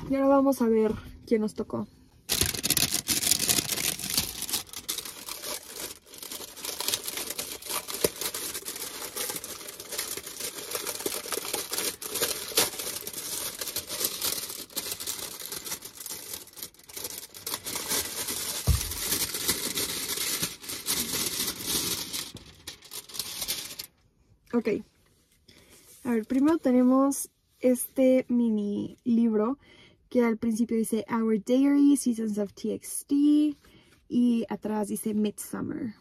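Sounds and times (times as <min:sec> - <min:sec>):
plastic bag crinkling: 0:02.3 - 0:23.9.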